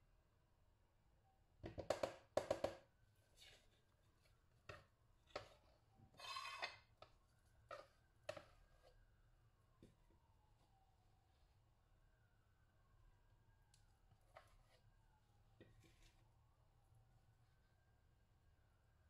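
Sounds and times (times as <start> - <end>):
spatula knocking on bowl: 1.6 - 2.8
spatula scraping bowl: 4.7 - 9.0, 14.2 - 14.8.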